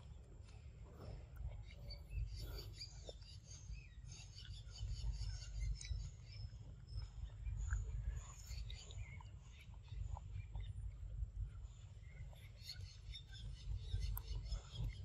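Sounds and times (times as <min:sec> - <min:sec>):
steady low rumble: 0:00.0 - 0:15.0
bird chirps: 0:01.5 - 0:15.0.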